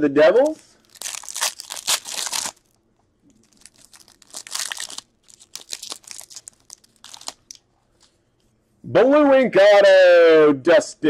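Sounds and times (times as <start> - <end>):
wrappers tearing and crinkling: 0.4 - 7.6.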